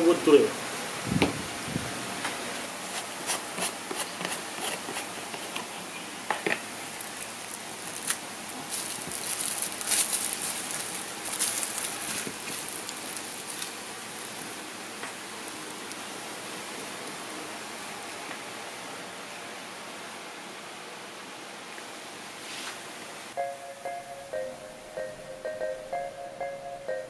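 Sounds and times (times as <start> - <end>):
steady hiss: 0.0 - 4.1
plastic wrap crinkling: 6.6 - 16.2.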